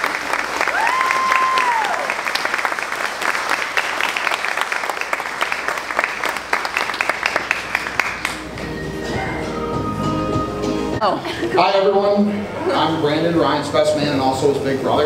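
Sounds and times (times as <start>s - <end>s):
crowd applauding: 0.0s - 9.6s
soft music with held notes: 8.4s - 11.1s.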